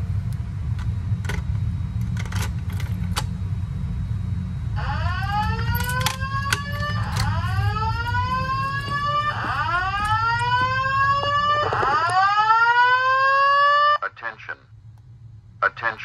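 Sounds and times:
fire alarm whoop tone: 0:04.8 - 0:14.0.

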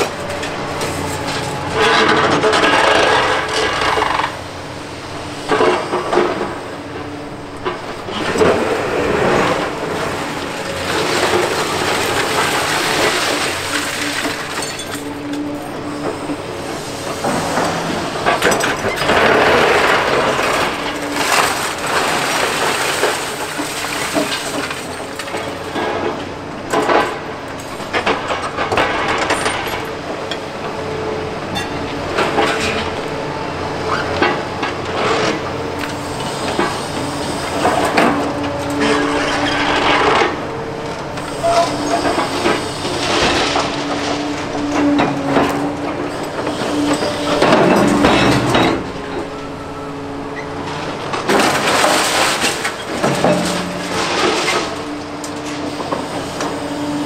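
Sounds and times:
concrete crunching and clattering: 0:00.0 - 0:04.5, 0:05.4 - 0:33.2, 0:33.8 - 0:57.0.

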